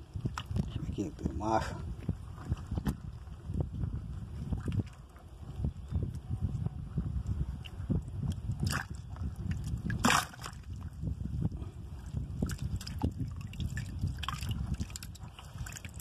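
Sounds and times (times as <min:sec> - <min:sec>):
water splashing in a bucket: 0:00.0 - 0:00.8, 0:08.6 - 0:11.0, 0:12.4 - 0:16.0.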